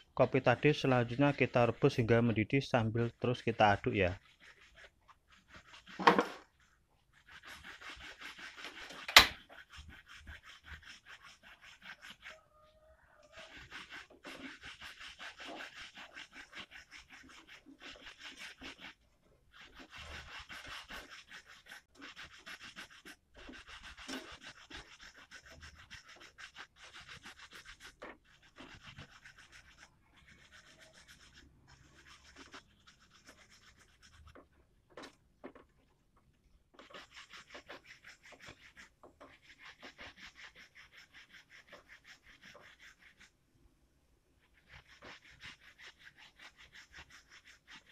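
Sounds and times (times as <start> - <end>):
wooden spatula scraping saucepan: 0.1 - 19.0, 36.8 - 43.0.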